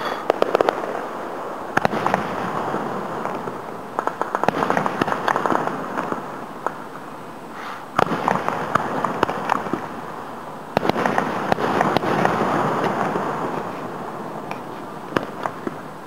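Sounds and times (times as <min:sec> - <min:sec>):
firework shells bursting: 0:00.0 - 0:07.0, 0:10.7 - 0:16.0
echoing firework crackle: 0:00.0 - 0:16.0.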